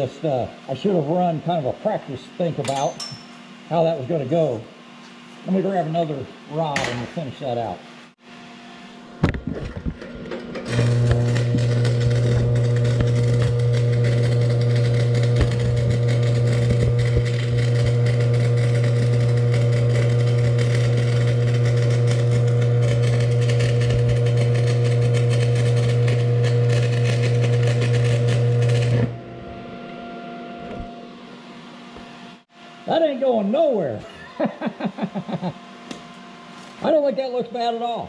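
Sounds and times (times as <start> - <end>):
welder low hum: 0.0 - 38.0
welding arc crackling and buzzing: 9.2 - 29.7.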